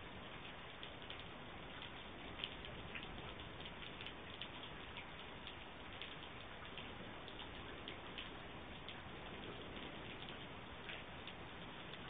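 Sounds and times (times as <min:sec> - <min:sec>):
rain hissing: 0:00.0 - 0:12.0
raindrops ticking: 0:00.0 - 0:12.0.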